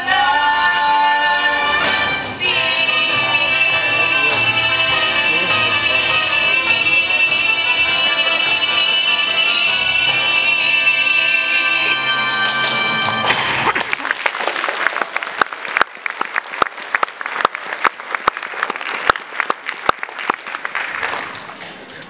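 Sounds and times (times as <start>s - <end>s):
audience applauding: 11.6s - 21.9s.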